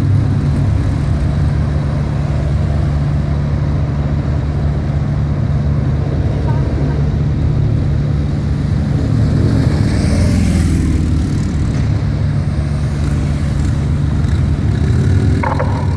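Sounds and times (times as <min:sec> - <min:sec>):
police motorcycle driving past: 0:08.4 - 0:15.9
low engine drone: 0:12.8 - 0:15.9.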